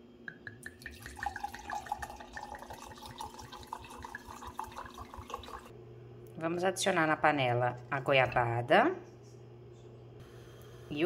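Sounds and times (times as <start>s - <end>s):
wine pouring into a glass: 0.6s - 5.7s.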